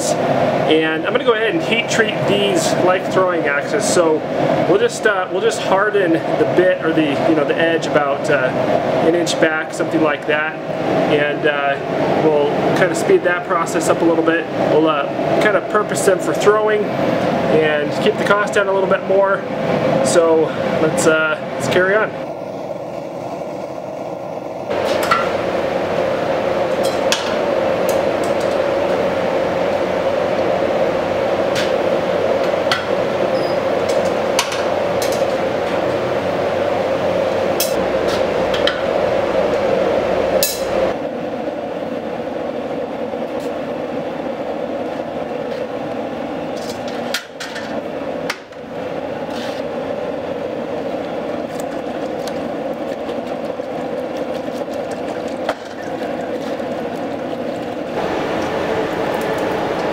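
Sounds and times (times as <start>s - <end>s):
gas forge burner running: 0.0s - 59.9s
hot steel swirled in quench oil: 50.4s - 59.9s.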